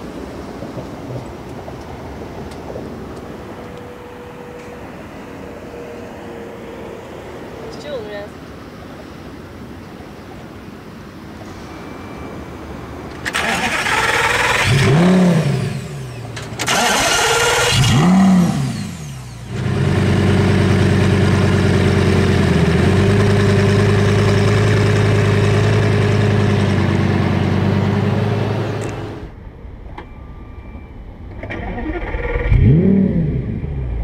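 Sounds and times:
car engine revving and idling: 0:13.3 - 0:29.4, 0:31.8 - 0:34.0.

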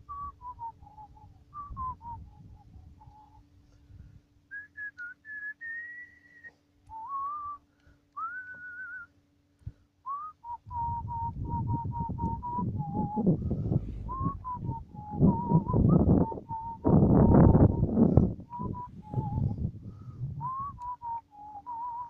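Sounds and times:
person whistling a tune: 0:00.0 - 0:03.4, 0:04.5 - 0:09.1, 0:10.1 - 0:19.7, 0:20.4 - 0:22.0
low noise: 0:06.7 - 0:22.0.

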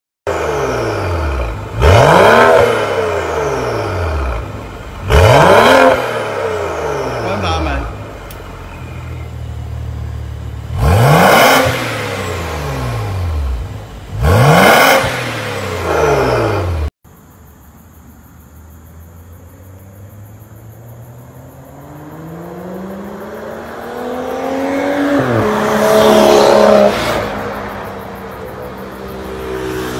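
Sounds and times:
car engine revving: 0:00.3 - 0:16.9, 0:19.3 - 0:29.9
car accelerating past: 0:20.1 - 0:29.9.

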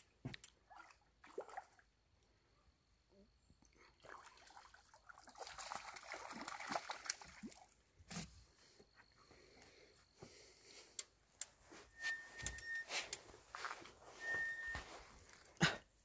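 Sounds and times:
fish splashing in water: 0:04.1 - 0:07.8.

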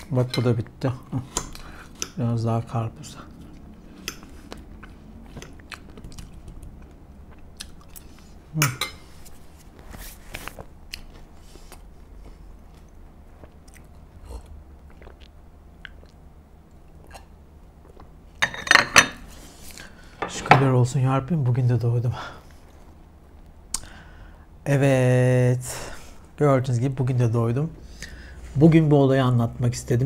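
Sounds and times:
person chewing watermelon: 0:03.3 - 0:08.4, 0:10.9 - 0:18.2.

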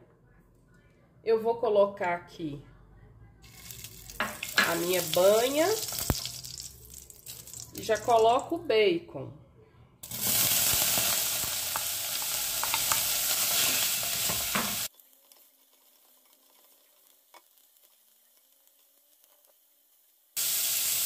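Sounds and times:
bacon sizzling: 0:03.4 - 0:08.5, 0:10.0 - 0:21.0.

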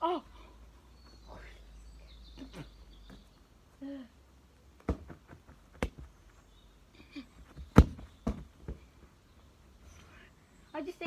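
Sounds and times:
football kicks thudding: 0:04.8 - 0:06.1, 0:07.5 - 0:08.9.

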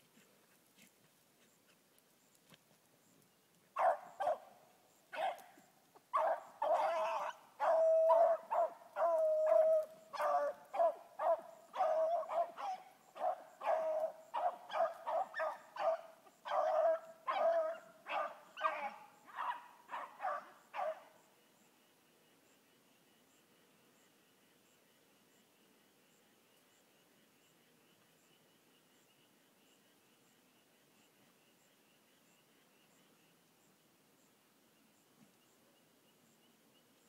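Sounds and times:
dog barking: 0:03.8 - 0:04.4, 0:05.1 - 0:05.5, 0:06.1 - 0:21.1.

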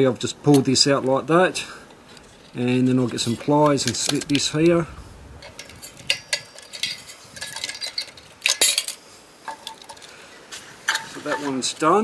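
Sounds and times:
pliers clinking and scraping metal: 0:02.0 - 0:04.8, 0:05.4 - 0:11.8.

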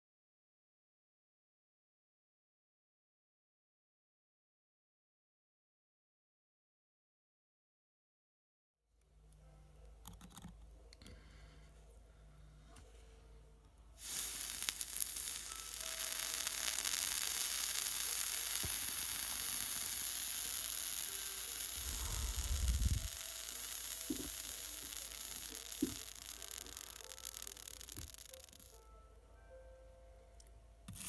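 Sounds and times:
vape coil sizzling hiss: 0:14.0 - 0:28.8
low rumble: 0:21.8 - 0:23.1.

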